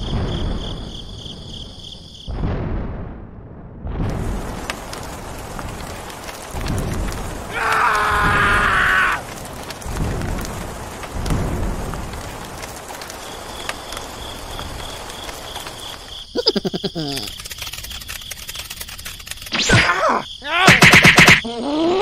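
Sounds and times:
low rolls of thunder: 0:00.0 - 0:16.0
rain falling: 0:04.1 - 0:19.3
rapid rattle of clicks: 0:17.1 - 0:19.6.

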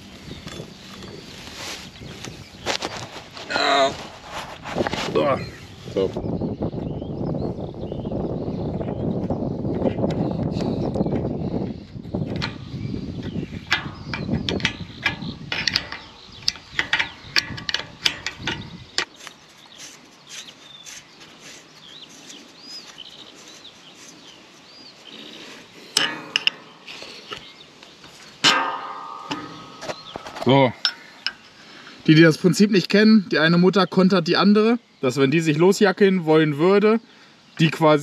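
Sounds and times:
metallic clicks of nuts tightening: 0:13.6 - 0:19.1, 0:25.9 - 0:27.4.

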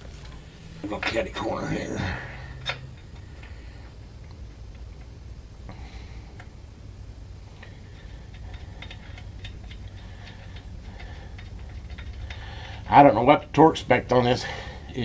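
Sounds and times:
steady low hum: 0:00.0 - 0:15.0
hand ratchet clicking: 0:08.3 - 0:13.0.

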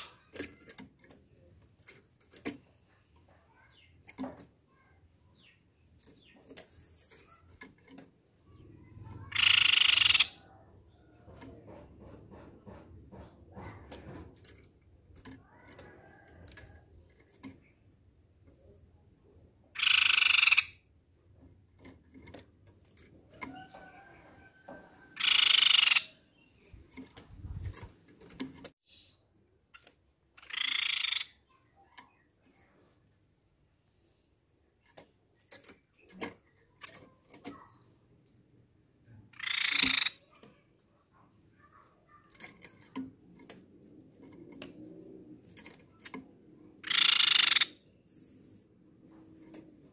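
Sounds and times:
bird calling: 0:39.3 - 0:42.8, 0:46.8 - 0:48.8.

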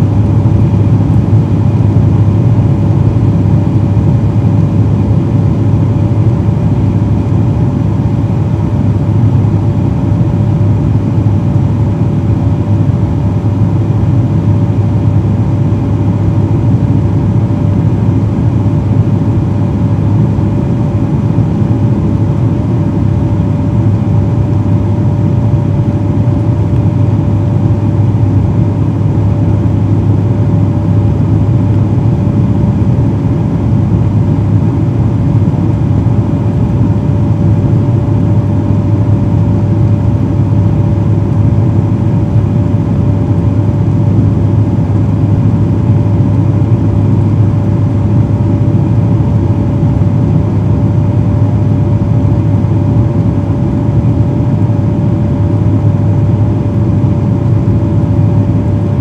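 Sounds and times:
turboprop engine drone: 0:00.0 - 0:59.0.

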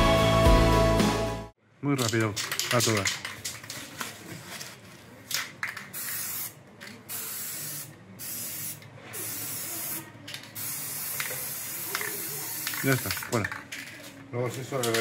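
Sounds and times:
spray paint can hissing: 0:05.3 - 0:14.1.

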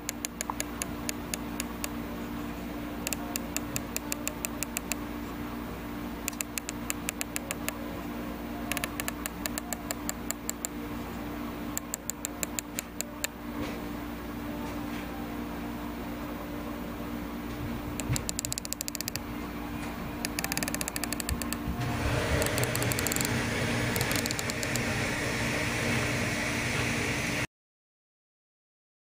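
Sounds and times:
steady low hum: 0:00.0 - 0:27.5
scope turret clicking: 0:18.0 - 0:19.2, 0:20.2 - 0:21.6, 0:22.4 - 0:23.4, 0:24.0 - 0:24.8.

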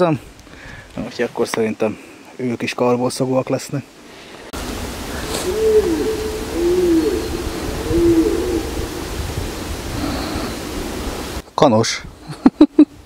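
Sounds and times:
wind noise on microphone: 0:04.6 - 0:11.4
bird hooting: 0:05.1 - 0:09.1.

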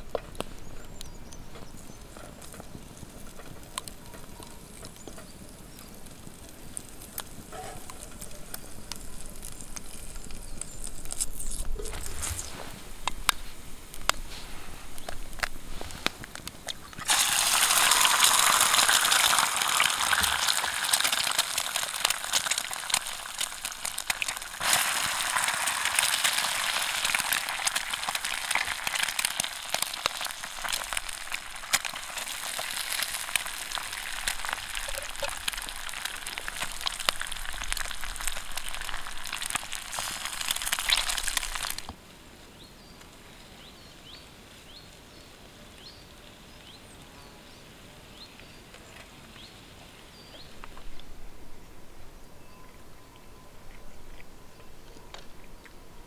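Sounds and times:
quiet outdoor background: 0:00.0 - 0:56.0
eggs sizzling in hot oil: 0:02.1 - 0:41.9.

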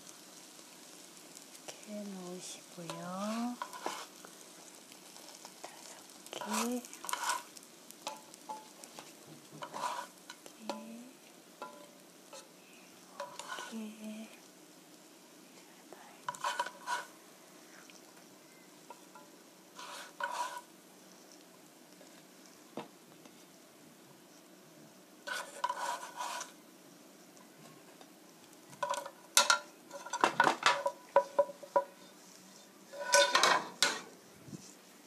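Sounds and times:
metal tongs clinking on pan: 0:06.3 - 0:09.0, 0:11.6 - 0:12.5, 0:28.8 - 0:31.9, 0:32.9 - 0:34.1.

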